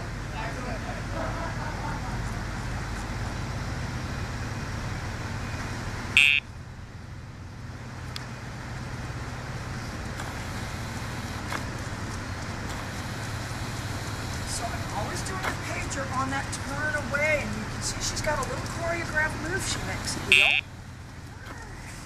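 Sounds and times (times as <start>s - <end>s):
steady traffic: 0.0s - 22.0s
short electronic beep: 6.2s - 6.4s.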